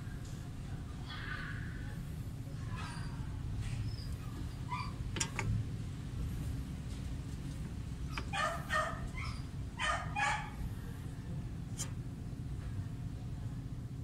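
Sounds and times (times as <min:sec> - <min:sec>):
steady low hum: 0:00.0 - 0:14.0
dog barking: 0:08.2 - 0:10.6.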